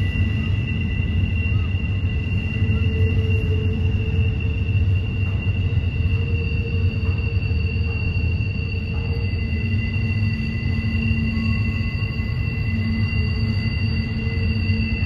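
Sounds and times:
low rumble of train cars: 0:00.0 - 0:15.0
train wheels squealing on rails: 0:00.0 - 0:15.0.

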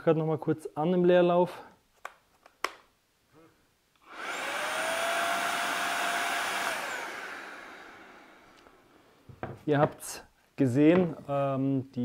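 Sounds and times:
paint sprayer turbine whining: 0:04.0 - 0:08.8.

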